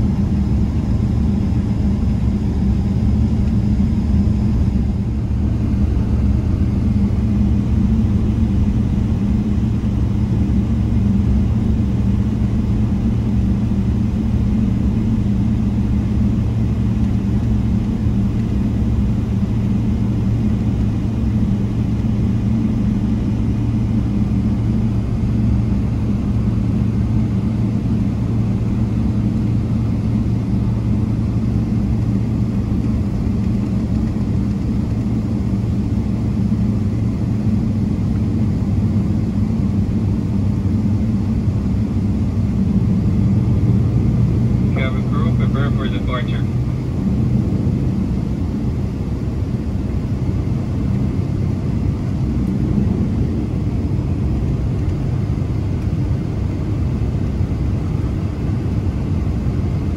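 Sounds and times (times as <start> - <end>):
aircraft cabin rumble: 0.0 - 59.9.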